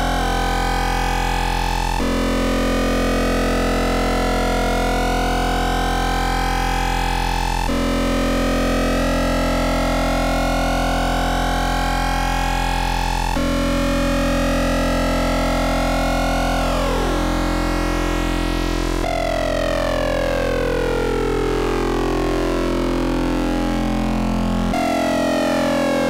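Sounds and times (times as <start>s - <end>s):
buzzy synthesizer drone: 0.0s - 26.0s.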